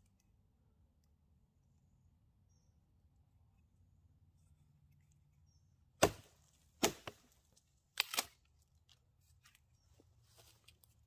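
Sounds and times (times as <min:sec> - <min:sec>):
axe chopping log: 0:06.0 - 0:07.3.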